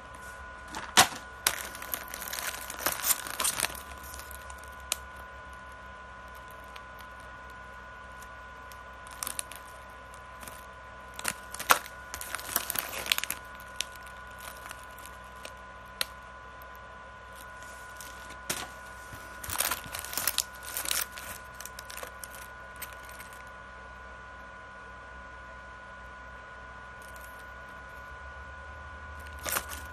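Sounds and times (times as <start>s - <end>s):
faint steady high hum: 0.0s - 29.9s
plastic snack packaging crackling: 0.6s - 16.2s, 17.3s - 23.4s, 29.2s - 29.9s.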